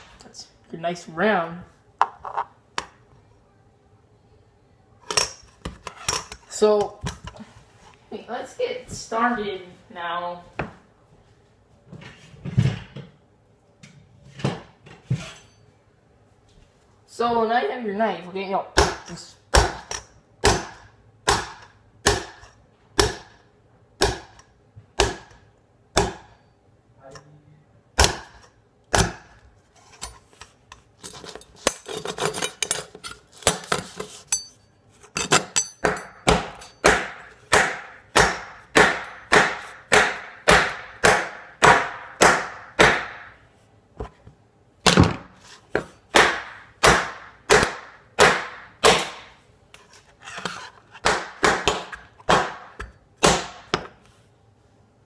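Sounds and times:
knife chopping on tabletop: 18.8 - 23.4, 24.0 - 26.4, 28.0 - 29.4, 35.3 - 43.3, 51.0 - 54.0.

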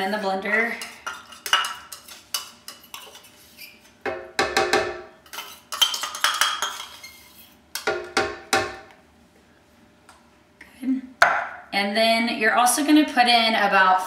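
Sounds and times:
metal spoon scraping metal cup: 0.0 - 3.9.

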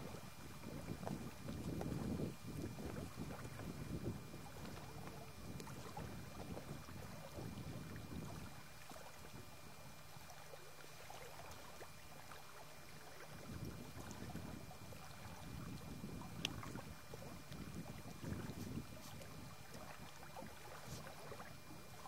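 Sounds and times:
wind buffeting microphone: 0.0 - 8.5, 13.3 - 21.8.

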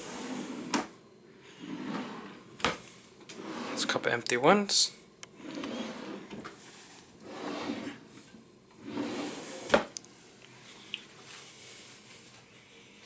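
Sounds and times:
drawers sliding on runners: 0.0 - 0.9, 1.6 - 4.0, 5.4 - 6.6, 7.2 - 8.1, 8.8 - 10.0.

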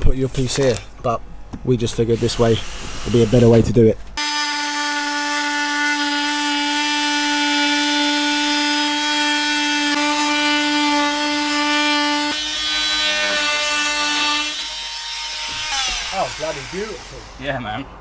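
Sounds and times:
oscillating multi-tool cutting wood: 4.2 - 17.4.

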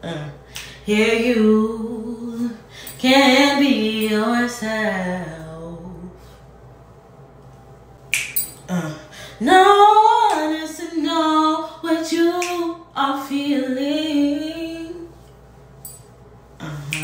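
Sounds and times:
woman singing unaccompanied: 0.0 - 6.1, 8.7 - 15.1.

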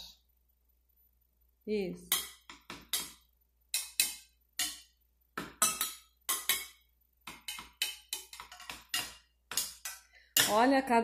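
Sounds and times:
stick striking water-filled cups: 2.1 - 10.7.

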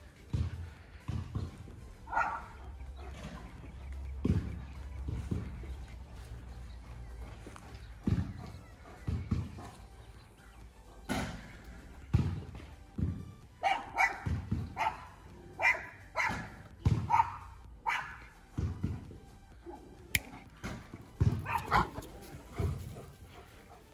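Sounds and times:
dog barking: 2.1 - 3.3, 13.6 - 18.3, 21.4 - 23.9.

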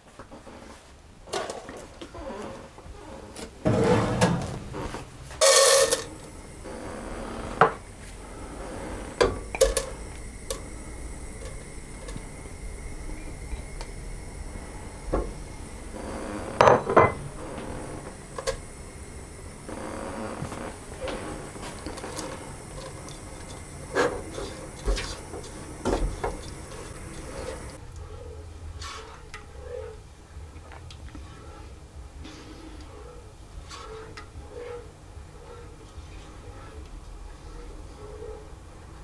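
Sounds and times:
pan and utensils clattering: 3.6 - 6.3, 9.2 - 12.4, 16.6 - 18.6, 21.0 - 27.8.

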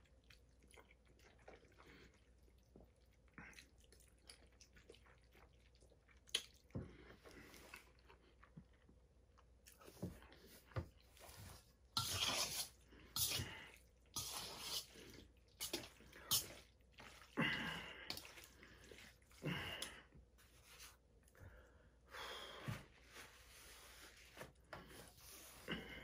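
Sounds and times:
chewing: 0.0 - 11.2
fork scraping metal bowl: 12.0 - 16.6
breaths: 17.4 - 20.2, 21.3 - 23.3.

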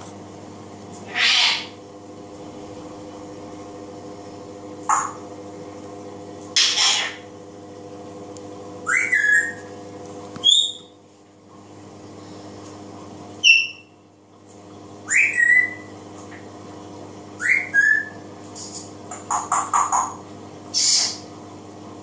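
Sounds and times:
parrot whistling: 8.8 - 9.6, 10.4 - 10.9, 13.4 - 13.9, 15.1 - 15.9, 17.4 - 18.2.

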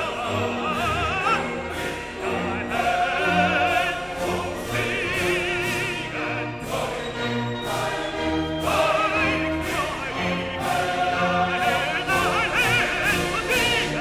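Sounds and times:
classical singing with vibrato: 0.0 - 14.0
orchestra and choir: 0.0 - 14.0.

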